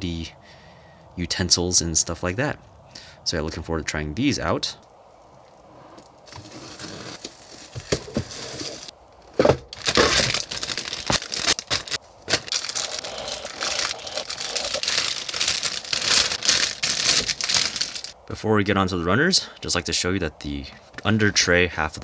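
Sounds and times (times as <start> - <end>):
plastic wrapping crinkling and tearing: 9.7 - 18.2.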